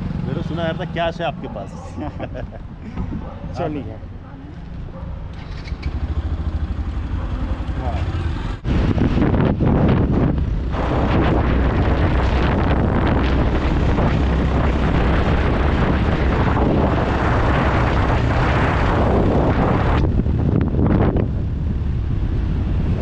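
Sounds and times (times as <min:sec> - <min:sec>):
motorcycle engine: 0:00.0 - 0:01.5, 0:04.5 - 0:23.0
road noise: 0:00.0 - 0:23.0
wind buffeting microphone: 0:01.5 - 0:23.0.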